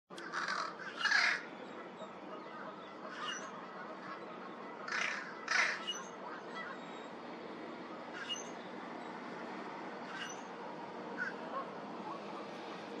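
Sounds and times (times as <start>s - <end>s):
crow cawing: 0.2s - 1.5s, 4.8s - 6.8s, 11.2s - 11.7s.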